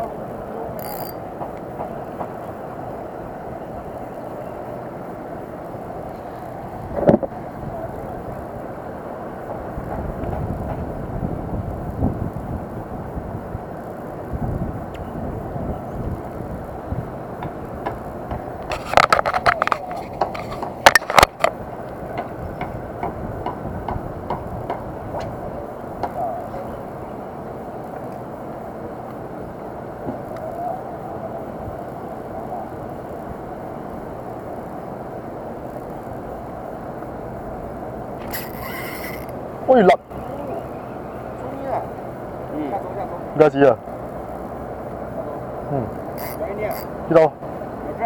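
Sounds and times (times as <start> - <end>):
wind buffeting microphone: 0.0 - 48.0
fishing reel ticking: 0.8 - 1.2, 38.2 - 39.4, 46.0 - 47.0
handling clicks and scraping: 0.8 - 1.7, 18.6 - 22.4.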